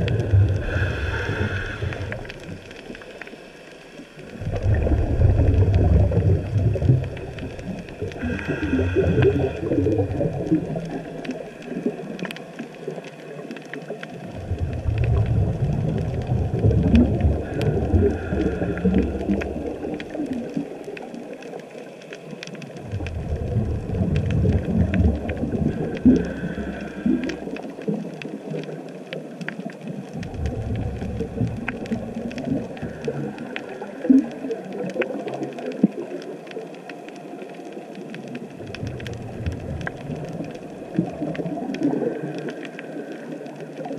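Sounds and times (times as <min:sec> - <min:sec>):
underwater regulator bubbles: 0:00.0 - 0:03.4, 0:04.0 - 0:43.9.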